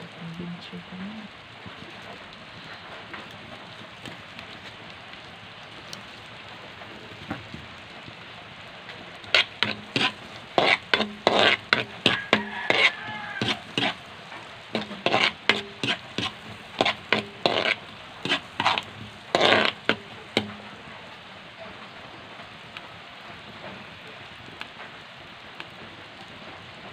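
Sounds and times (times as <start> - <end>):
garlic and onion sizzling in a wok: 0.0 - 26.9
utensil scraping a wok: 9.2 - 21.0.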